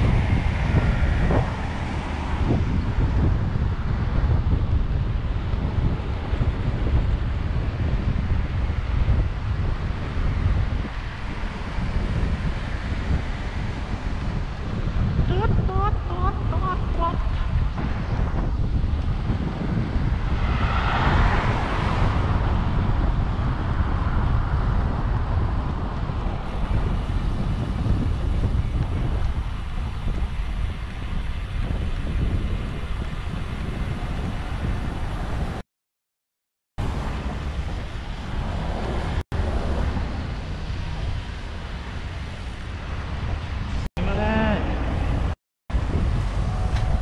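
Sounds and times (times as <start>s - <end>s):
car passing: 0.0s - 4.0s, 16.0s - 31.5s, 36.8s - 43.7s
wind buffeting microphone: 0.0s - 35.6s, 36.8s - 47.0s.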